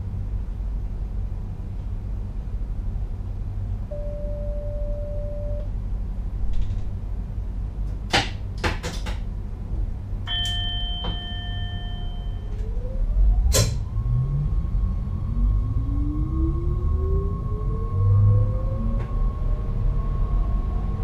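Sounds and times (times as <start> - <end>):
low train running rumble: 0.0 - 21.0
chime-like electronic tone: 3.9 - 5.7, 10.3 - 12.6
short electronic beep: 3.9 - 5.7
tone rising in pitch: 3.9 - 5.7.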